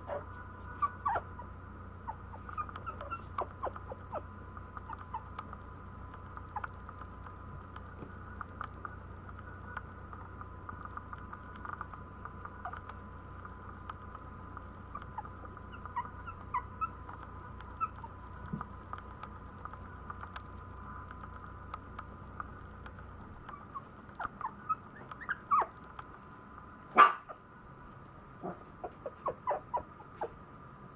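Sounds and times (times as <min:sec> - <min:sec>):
puppy squeaking and whimpering: 0:00.0 - 0:05.4, 0:12.6 - 0:12.9, 0:14.9 - 0:18.2, 0:23.4 - 0:25.8, 0:28.8 - 0:30.4
steady hum: 0:00.0 - 0:30.9
claws ticking on tile floor: 0:02.4 - 0:27.0.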